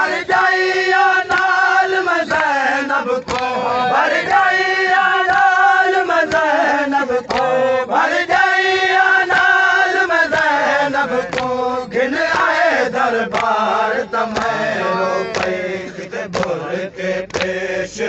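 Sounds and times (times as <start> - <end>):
man chanting a lament: 0.0 - 5.3.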